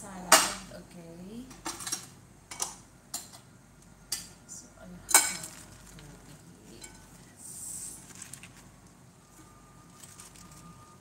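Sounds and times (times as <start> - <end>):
utensils clinking on salad bowl: 5.1 - 6.0
salad leaves rustling: 5.2 - 11.0.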